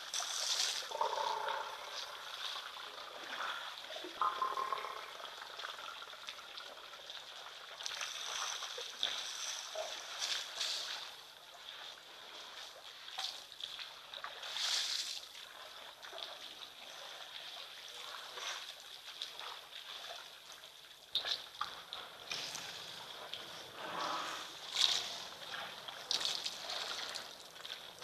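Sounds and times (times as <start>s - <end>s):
elephants splashing water: 21.9s - 28.0s.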